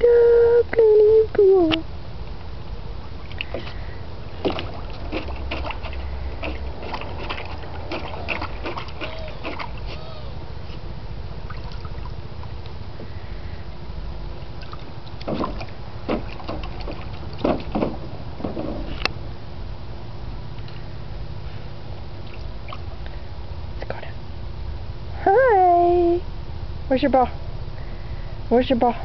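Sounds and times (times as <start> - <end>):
steady low rumble: 0.0 - 29.0
dog splashing in water: 4.4 - 10.0, 14.6 - 18.7.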